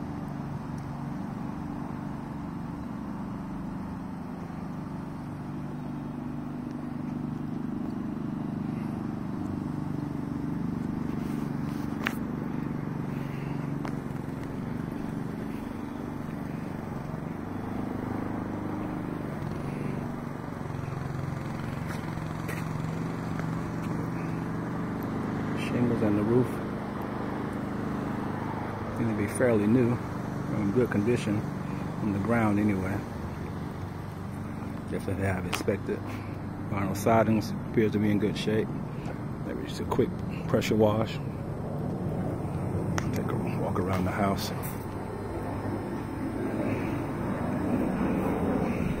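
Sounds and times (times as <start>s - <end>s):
low mechanical hum: 0.0s - 49.0s.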